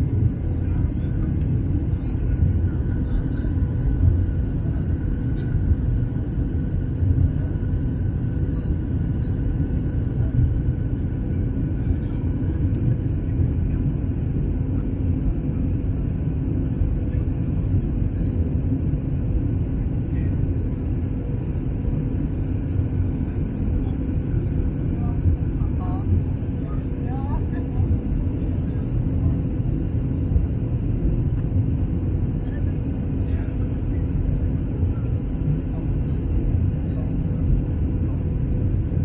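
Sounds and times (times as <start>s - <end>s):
jet engine and airflow rumble: 0.0s - 39.0s.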